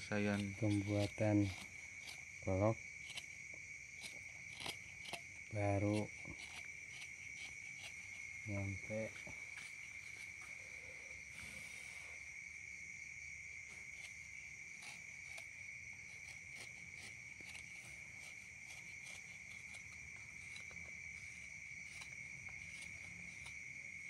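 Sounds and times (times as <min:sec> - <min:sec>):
high cricket trill: 0:00.0 - 0:24.0.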